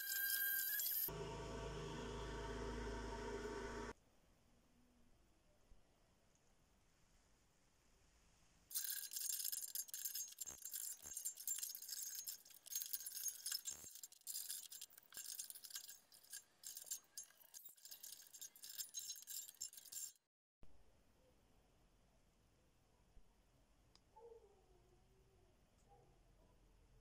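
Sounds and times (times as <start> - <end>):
steel rods rattling and clinking: 8.7 - 20.2.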